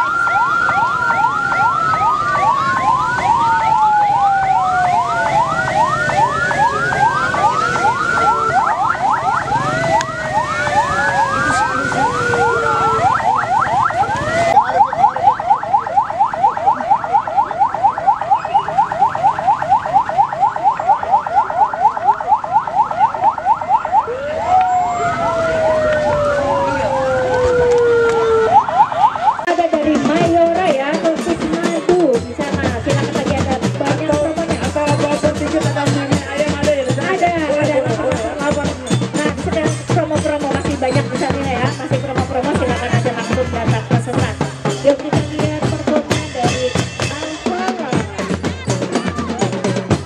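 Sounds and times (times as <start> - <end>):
pulsing siren tone: 0.0 - 29.7
siren wail: 0.0 - 29.9
siren yelp: 0.0 - 30.6.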